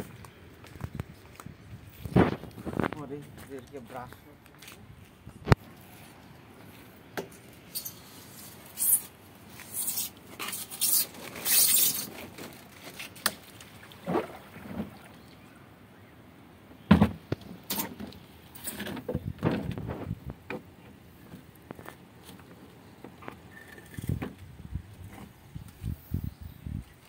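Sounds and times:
plastic tub scraping: 0:14.0 - 0:15.1.

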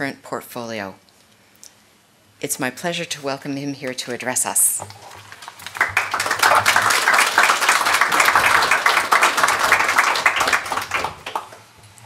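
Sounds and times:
audience applauding: 0:05.1 - 0:11.7.

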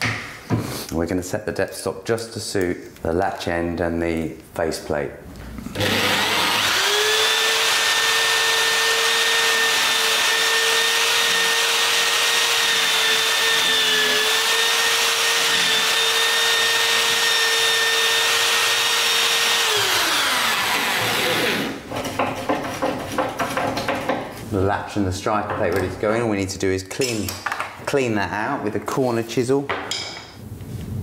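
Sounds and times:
electric drill whining: 0:05.7 - 0:21.8.

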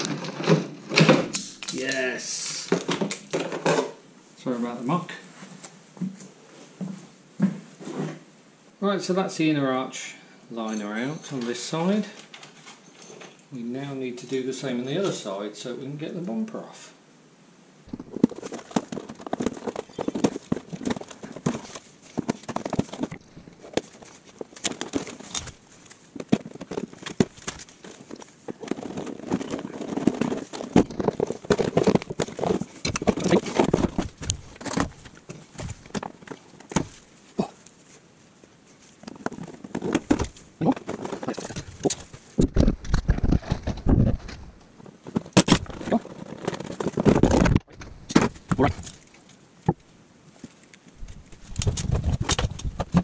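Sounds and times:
plastic fasteners clicking and scraping: 0:00.0 - 0:02.0, 0:02.6 - 0:04.0, 0:17.9 - 0:37.8, 0:38.8 - 0:49.8, 0:50.4 - 0:53.0.

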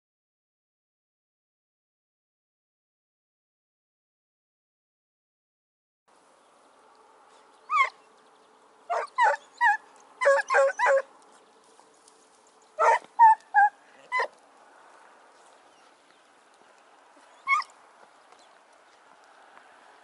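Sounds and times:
hounds yelping: 0:07.6 - 0:08.1, 0:08.9 - 0:11.1, 0:12.8 - 0:14.4, 0:17.2 - 0:17.8.

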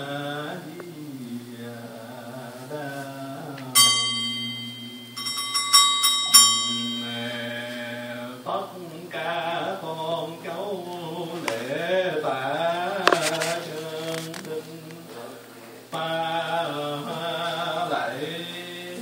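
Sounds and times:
monk chanting into a microphone: 0:00.0 - 0:05.2, 0:06.5 - 0:19.0
small ritual bell ringing: 0:03.8 - 0:08.2.

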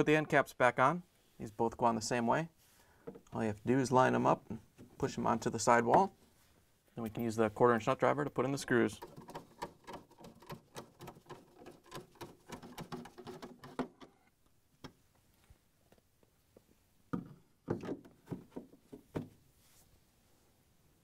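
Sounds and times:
nut driver clicking and creaking: 0:08.9 - 0:14.2
plastic parts knocking into place: 0:09.0 - 0:14.2.

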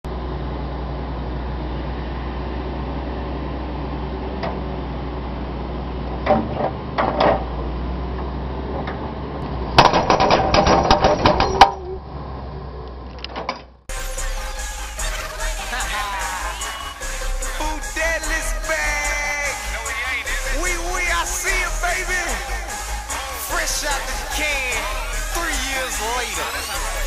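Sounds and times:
hydraulic breaker hammering: 0:09.8 - 0:11.8
machine engine running: 0:14.6 - 0:27.0.

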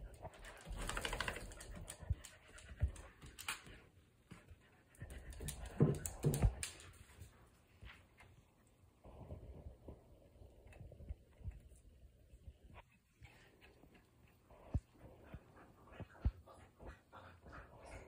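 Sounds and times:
dogs breathing and vocalizing: 0:12.8 - 0:18.0.

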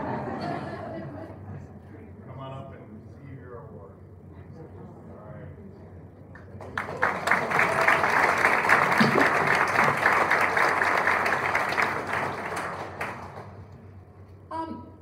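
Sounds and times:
audience applauding: 0:06.5 - 0:13.7.

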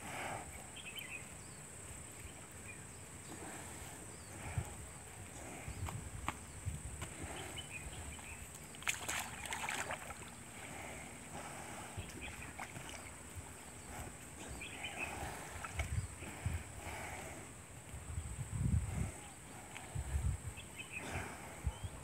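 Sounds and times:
water lapping and sloshing: 0:07.0 - 0:17.0
loud splashing: 0:08.8 - 0:10.3.

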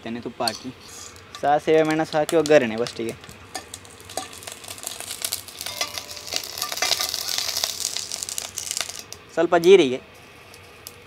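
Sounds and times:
seeds sizzling and popping in oil: 0:00.4 - 0:11.0
steel ladle stirring: 0:03.5 - 0:08.5.

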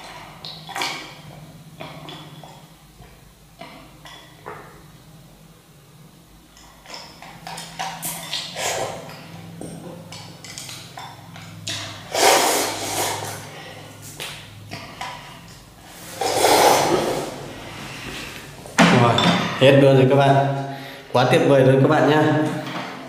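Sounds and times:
boy slurping noodles: 0:12.1 - 0:13.9, 0:15.9 - 0:18.5.

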